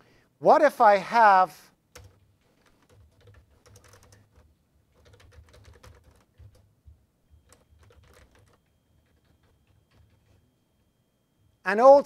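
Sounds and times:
faint keyboard typing: 0:01.9 - 0:10.9.

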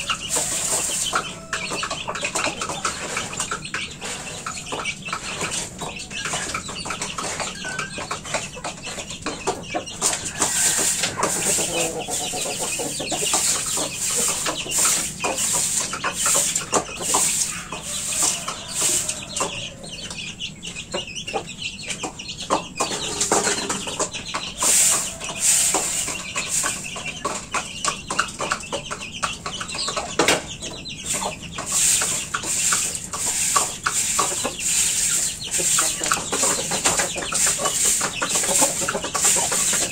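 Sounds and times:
chickens clucking: 0:00.0 - 0:39.9
short scraping strokes: 0:10.3 - 0:19.2.

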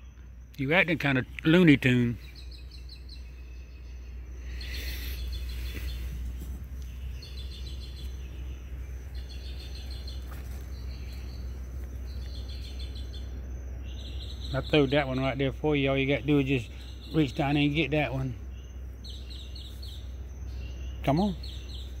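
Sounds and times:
low steady rumble: 0:00.0 - 0:22.0
night insects chirping: 0:00.0 - 0:22.0.

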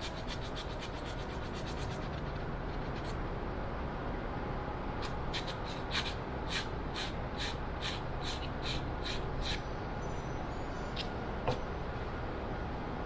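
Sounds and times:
sandpaper rasping on wood: 0:00.0 - 0:02.2, 0:05.3 - 0:09.6
steady low hum: 0:00.0 - 0:13.0.

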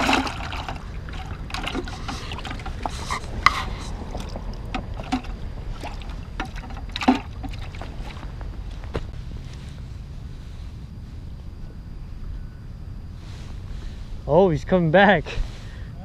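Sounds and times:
fishing gear clicks and knocks: 0:00.0 - 0:08.3
wind rumble on microphone: 0:00.0 - 0:14.4.

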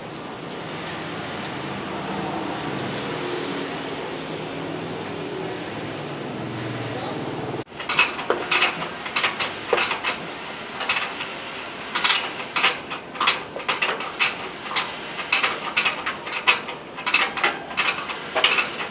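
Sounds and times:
metal tools clinking on steel frame: 0:07.8 - 0:18.9.

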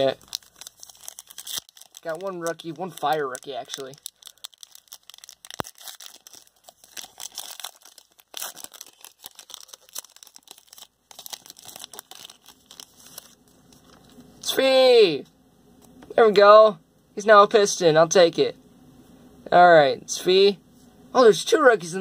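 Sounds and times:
foil wrapper crinkling: 0:00.0 - 0:14.2.

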